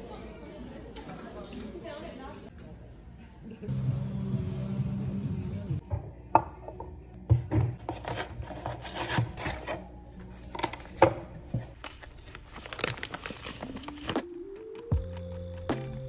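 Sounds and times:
paper packaging rustling: 11.6 - 16.0.

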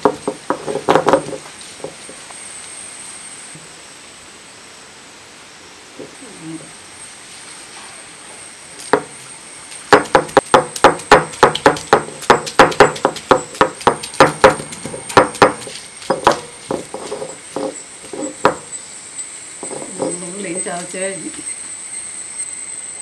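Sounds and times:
stone roller knocking on stone slab: 0.0 - 2.0, 8.9 - 9.1, 9.9 - 18.7, 19.6 - 20.3.

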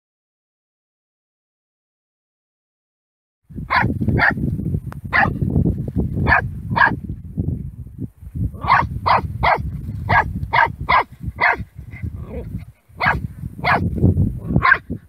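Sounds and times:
steady low rumble: 3.5 - 15.0
puppy barking: 3.7 - 4.4, 5.1 - 5.4, 6.2 - 7.0, 8.6 - 14.9.

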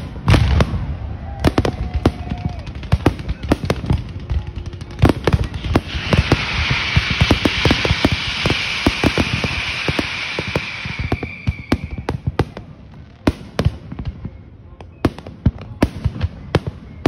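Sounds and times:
fireworks bangs: 0.0 - 17.0
fireworks hiss: 4.8 - 14.0
high whistle: 5.5 - 12.2, 16.6 - 17.0.

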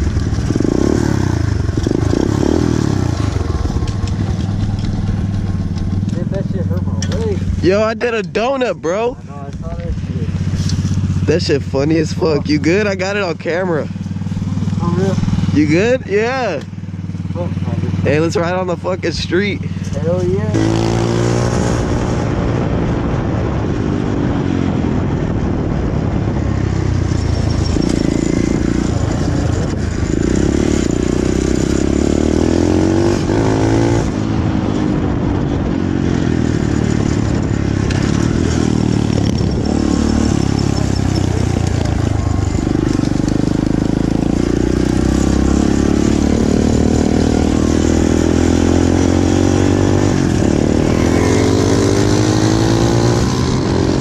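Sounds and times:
small motorbike engine revving: 37.7 - 54.0.

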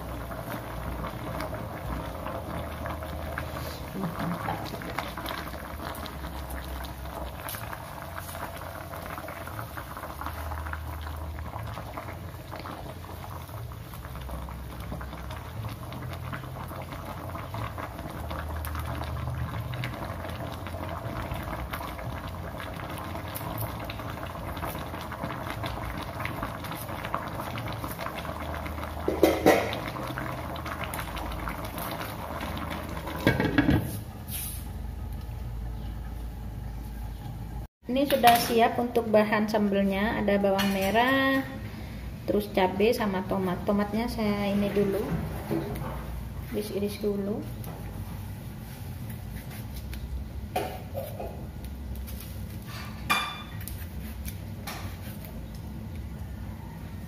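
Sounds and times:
chicken bubbling in broth: 0.0 - 36.2, 55.3 - 57.0.

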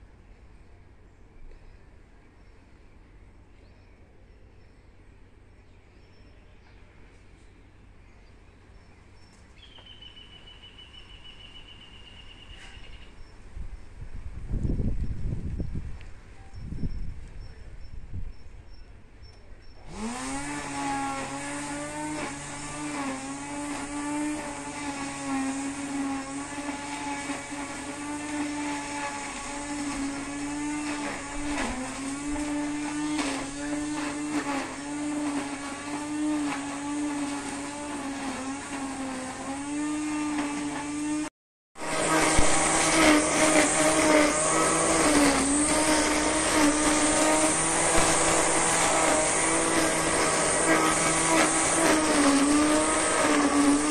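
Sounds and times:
electric string trimmer whining: 19.8 - 53.9.

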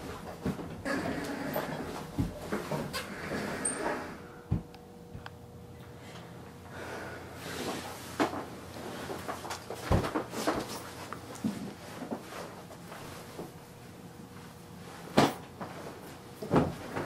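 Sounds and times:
knocks and rustling: 9.2 - 12.6, 15.1 - 17.0.

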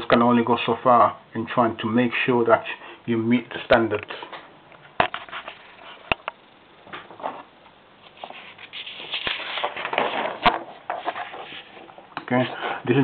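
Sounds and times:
paper pages rustling: 7.2 - 12.0.

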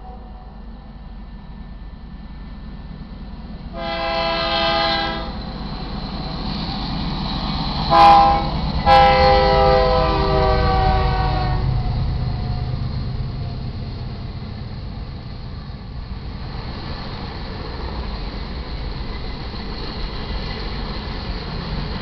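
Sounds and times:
freight train rumbling past: 0.0 - 22.0
locomotive air horn blast: 3.7 - 5.4, 7.9 - 11.8.

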